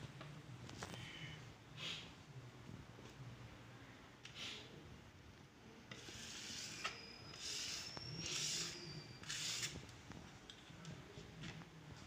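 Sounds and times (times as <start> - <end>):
thin high squeak: 6.2 - 9.8.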